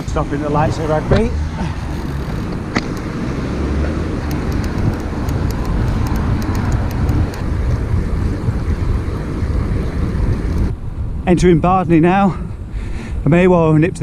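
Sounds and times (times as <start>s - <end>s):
wind rumbling on microphone: 0.0s - 14.0s
sharp click: 4.2s - 7.5s.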